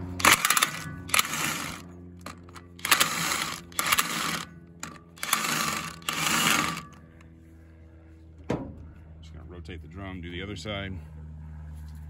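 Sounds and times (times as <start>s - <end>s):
power driver grinding: 0.0s - 7.2s.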